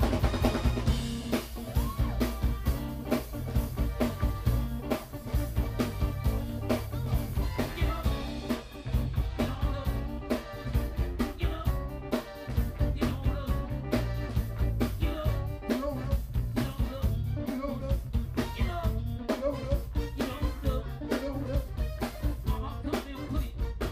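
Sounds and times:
drum beat: 0:00.0 - 0:23.9
electric blues band playing: 0:00.0 - 0:23.9
electric guitar: 0:00.0 - 0:23.9
man singing into a microphone: 0:07.4 - 0:08.6, 0:09.2 - 0:14.1, 0:14.8 - 0:23.9.

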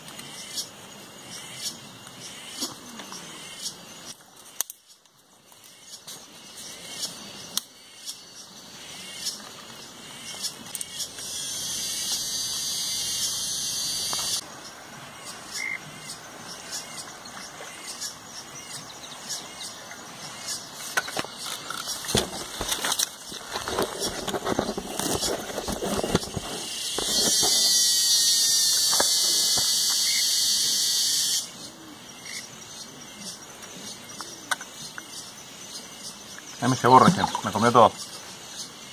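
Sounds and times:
cicada buzzing: 0:05.6 - 0:33.4
rustling and knocking: 0:20.8 - 0:27.8.

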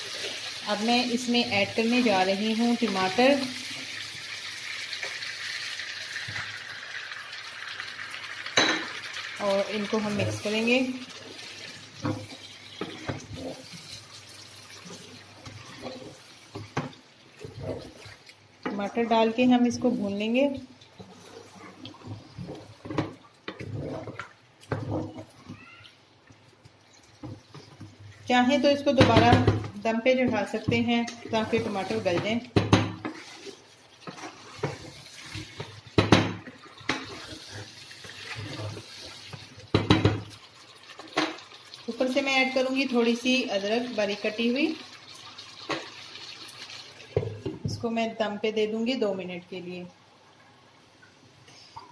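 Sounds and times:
chicken sizzling in frying pan: 0:00.0 - 0:16.8
wet sauce sizzling: 0:00.0 - 0:47.5
wooden spatula scraping a pan: 0:09.5 - 0:14.0, 0:14.7 - 0:25.6, 0:27.2 - 0:35.8, 0:36.5 - 0:39.5.

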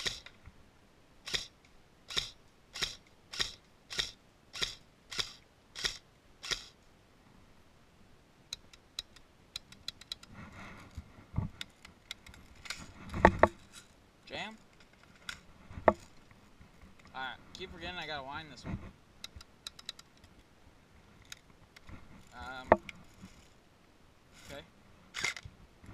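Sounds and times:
light clicks and handling noise: 0:08.5 - 0:17.7.

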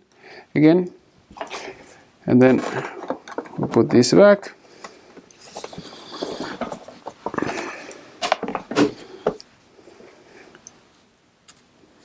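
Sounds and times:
laptop rubbing and scraping: 0:05.4 - 0:07.5.

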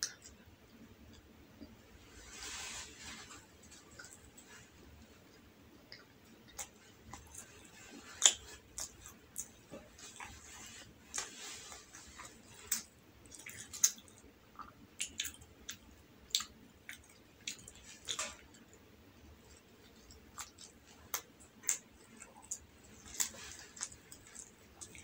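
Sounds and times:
person chewing with wet smacks: 0:00.0 - 0:01.8, 0:03.2 - 0:25.0.

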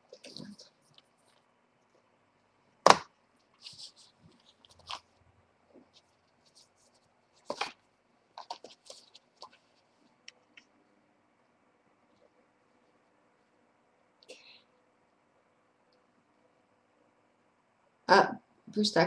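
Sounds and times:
crinkling and rustling: 0:00.0 - 0:02.1, 0:03.4 - 0:10.8.

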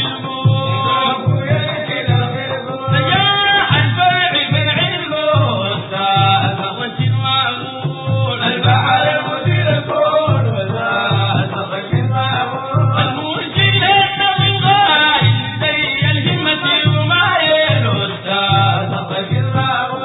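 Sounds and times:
frame drum beat: 0:00.0 - 0:20.0
men singing: 0:00.0 - 0:20.0.

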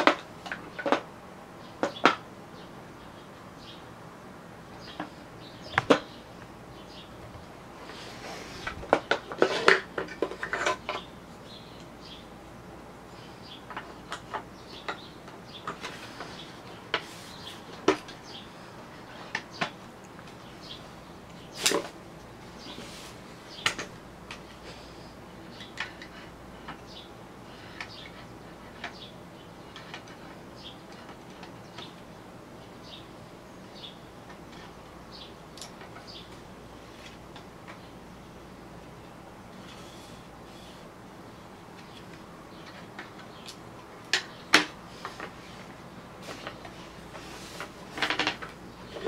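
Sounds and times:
wooden parts knocking: 0:46.3 - 0:49.0.

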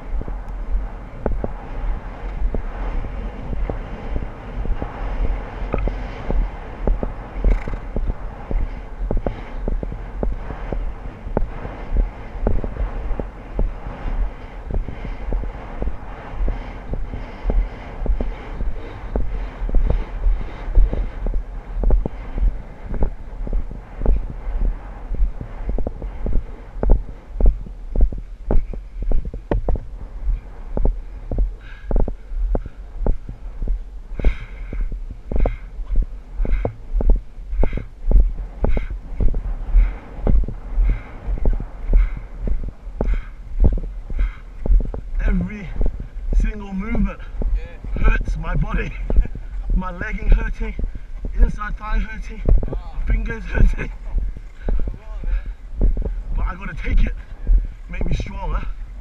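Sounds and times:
low rumble: 0:00.0 - 0:59.0
low thumps of horse movement: 0:00.0 - 0:59.0
wind buffeting microphone: 0:00.0 - 0:59.0
sharp clicks and knocks: 0:05.7 - 0:13.7, 0:25.1 - 0:29.9.

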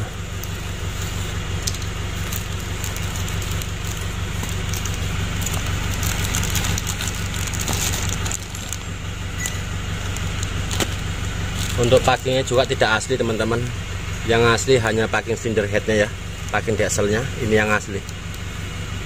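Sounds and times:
steady low hum: 0:00.0 - 0:19.0
plastic packaging crinkling: 0:00.2 - 0:12.8.

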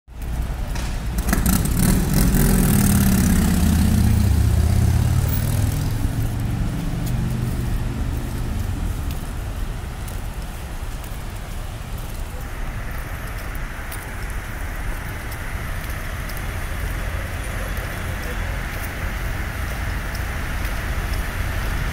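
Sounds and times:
idling vehicles rumble: 0:00.1 - 0:21.9
vehicle engine droning past: 0:00.8 - 0:09.8.

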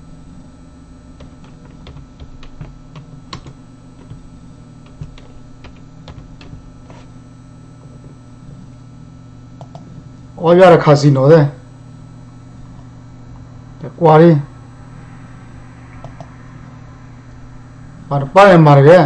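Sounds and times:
steady low hum: 0:00.0 - 0:19.0
keyboard typing: 0:01.2 - 0:07.1, 0:09.6 - 0:09.9, 0:16.0 - 0:16.4.

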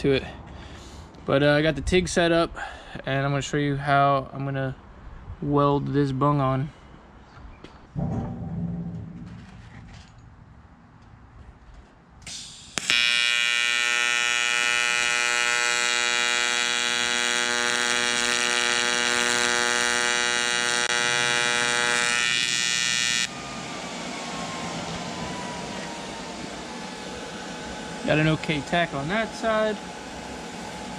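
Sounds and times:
welding arc buzz: 0:12.3 - 0:23.3, 0:26.8 - 0:30.9.

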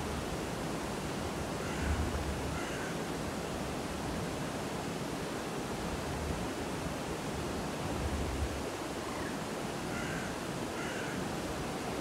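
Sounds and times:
flowing water rushing: 0:00.0 - 0:12.0
faint bird call: 0:09.1 - 0:11.2.

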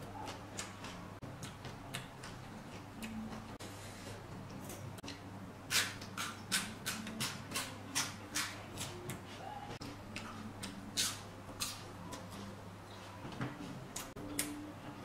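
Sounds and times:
person chewing with wet smacking: 0:00.0 - 0:03.6.

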